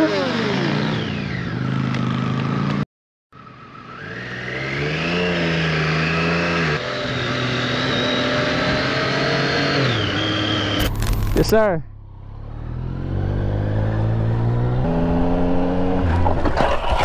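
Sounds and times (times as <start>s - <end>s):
motorcycle engine accelerating: 0.0s - 2.8s, 3.4s - 17.0s.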